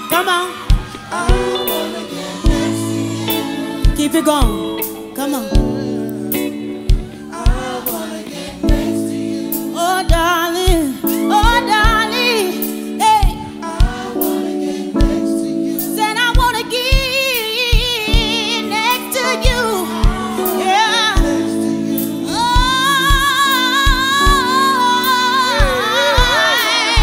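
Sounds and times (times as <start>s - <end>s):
live band sustained chords: 0.0s - 27.0s
slow kick drum: 0.6s - 1.7s, 3.8s - 4.8s, 6.8s - 7.8s, 10.1s - 12.1s, 13.2s - 14.2s, 15.0s - 15.3s, 21.2s - 21.5s, 22.5s - 24.5s
woman singing long held notes: 15.7s - 27.0s.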